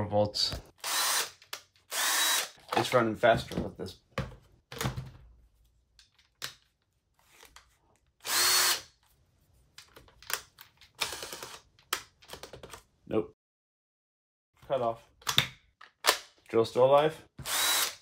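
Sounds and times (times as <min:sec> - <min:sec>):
cordless drill whining: 0:00.8 - 0:02.6, 0:08.2 - 0:08.9, 0:17.4 - 0:18.0
drill trigger clicks: 0:00.8 - 0:02.6.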